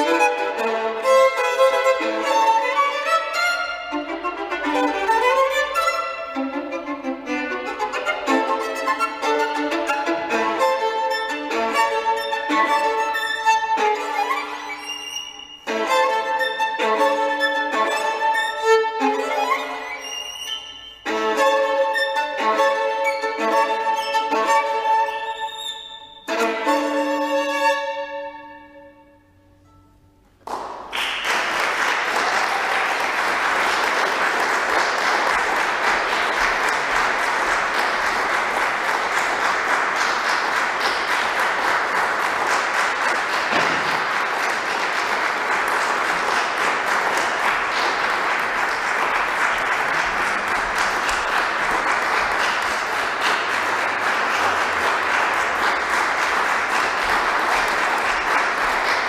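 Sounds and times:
solo violin note: 0.0s - 29.9s
audience applause: 30.4s - 59.0s.

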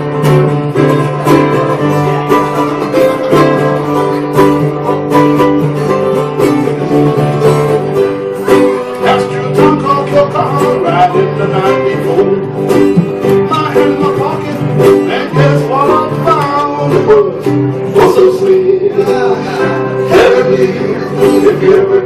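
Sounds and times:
electric bass line: 0.0s - 18.1s
acoustic guitar strumming: 0.0s - 22.0s
ukulele strumming: 0.0s - 22.0s
man singing: 9.0s - 22.0s.

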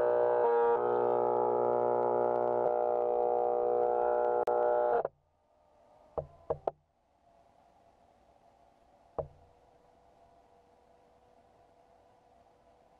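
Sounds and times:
stepper motors whining: 0.0s - 5.1s
knocks: 9.2s - 9.4s.

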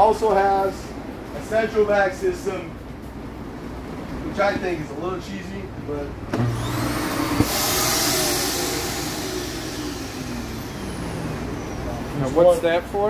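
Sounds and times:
vacuum suction with motor whine: 6.4s - 12.7s.

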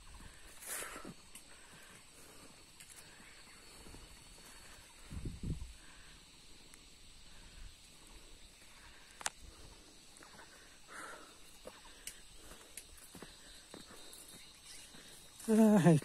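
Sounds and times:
faint high insect drone: 0.0s - 16.0s.

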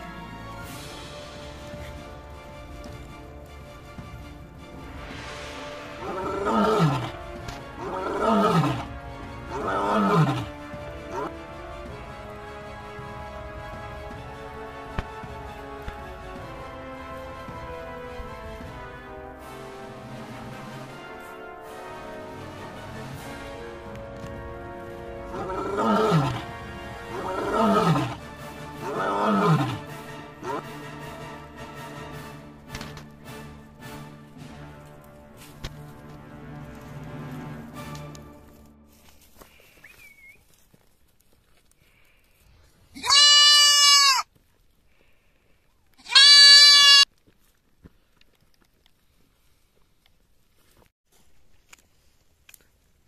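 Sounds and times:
background music: 0.0s - 39.7s.

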